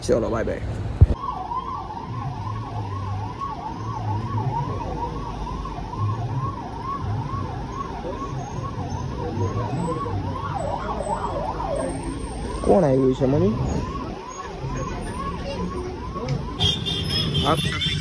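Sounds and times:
low rumble of vehicle engines: 0.0 - 18.0
police siren wailing: 1.2 - 18.0.

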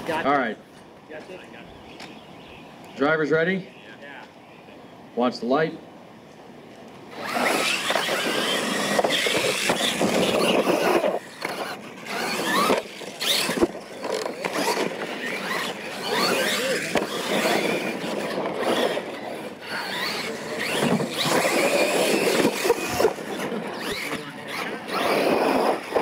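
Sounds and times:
electric motors whining: 7.0 - 26.0
tyre noise on dirt: 7.2 - 19.0.

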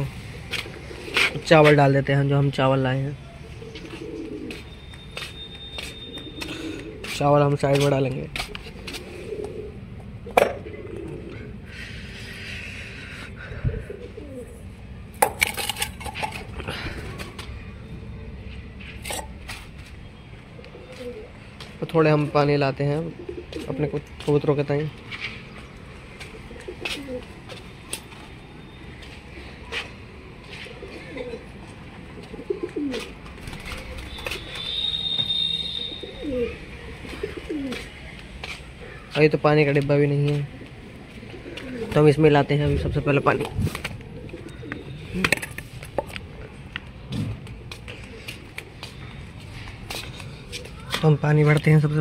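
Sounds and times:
pigeons cooing: 0.0 - 1.7, 3.2 - 4.8, 5.5 - 7.2, 8.4 - 14.7, 20.6 - 21.7, 23.1 - 24.2, 26.2 - 27.6, 30.4 - 34.9, 35.7 - 38.0, 40.3 - 45.6, 47.5 - 49.3
thin high whistle: 34.4 - 36.2.

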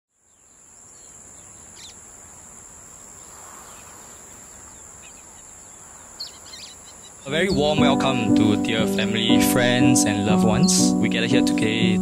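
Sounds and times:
faint bird chirps: 0.2 - 7.5.

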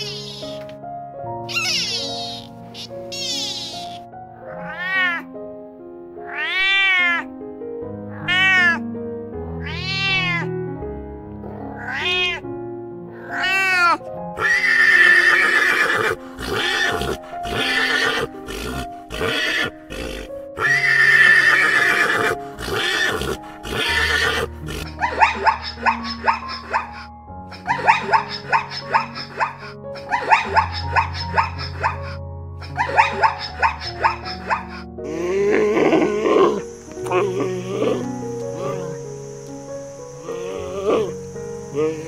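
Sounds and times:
soft background music: 0.0 - 42.0
cat meowing: 1.5 - 5.2, 6.2 - 7.3, 8.1 - 8.8, 9.6 - 10.5, 11.8 - 12.5, 13.2 - 15.9
pony neighing: 1.5 - 5.2, 13.1 - 39.2, 40.1 - 42.0.

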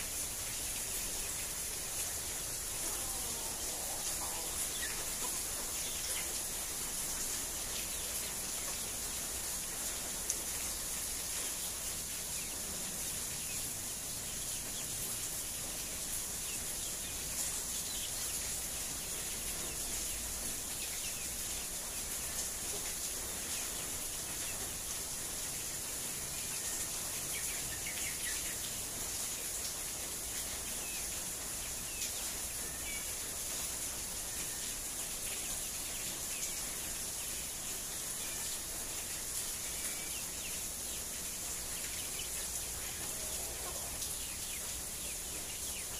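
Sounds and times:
high-pitched hiss: 0.0 - 12.4.

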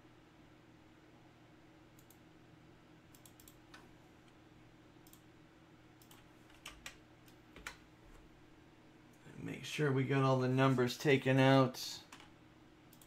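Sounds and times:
faint low hum: 0.0 - 13.0
computer keyboard and mouse clicks: 3.1 - 3.9, 5.0 - 5.2, 6.0 - 7.8.

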